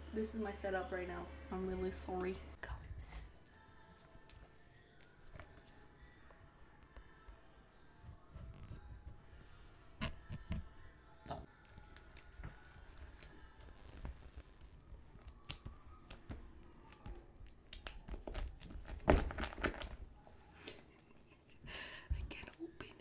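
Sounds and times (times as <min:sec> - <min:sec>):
plastic wrapping tearing and crinkling: 0:11.5 - 0:20.2.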